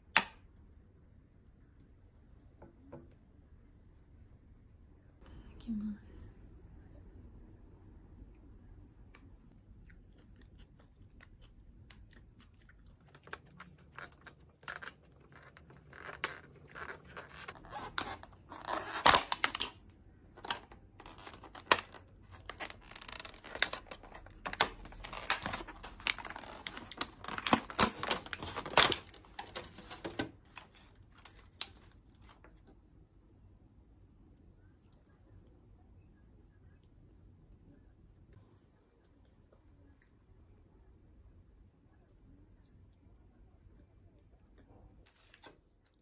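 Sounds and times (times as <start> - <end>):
plastic clamshell crackling: 20.4 - 32.4.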